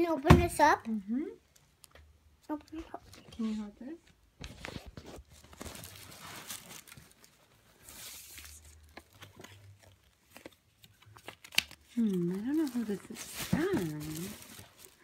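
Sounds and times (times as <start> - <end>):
tissue paper rustling: 4.5 - 15.0.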